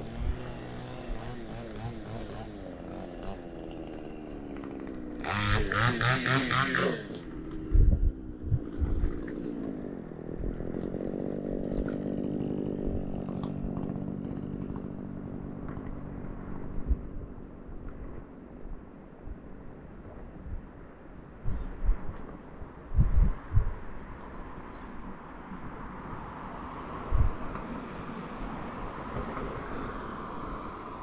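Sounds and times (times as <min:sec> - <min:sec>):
engine revving loudly: 0:00.0 - 0:07.9
passing traffic engines: 0:00.0 - 0:31.0.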